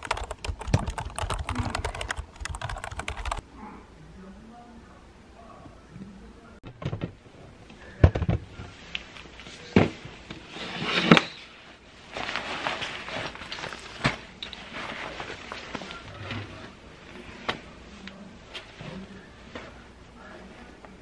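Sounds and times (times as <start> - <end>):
fabric rustling: 10.5 - 17.7.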